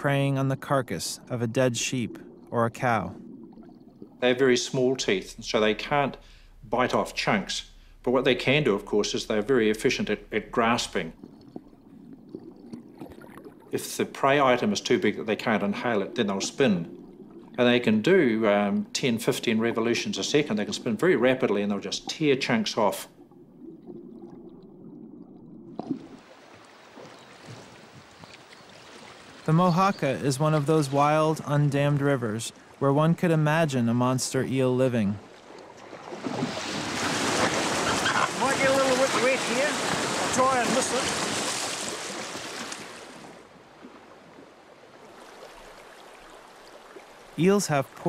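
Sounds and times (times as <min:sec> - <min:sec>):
muffled underwater rumble: 0:00.0 - 0:26.2
rushing river water: 0:25.8 - 0:33.6, 0:35.2 - 0:48.0
river water rushing: 0:36.2 - 0:44.2.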